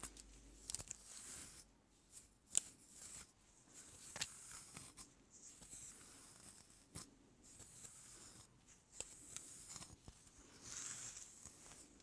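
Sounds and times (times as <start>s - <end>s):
comb scraping through hair: 3.9s - 12.0s.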